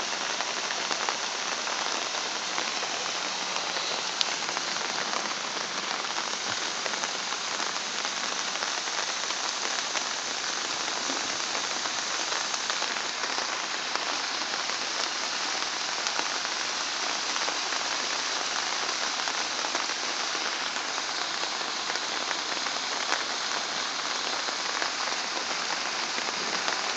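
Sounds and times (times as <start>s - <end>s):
muddy water running: 0.0s - 14.3s
heavy rain hissing: 0.0s - 26.9s.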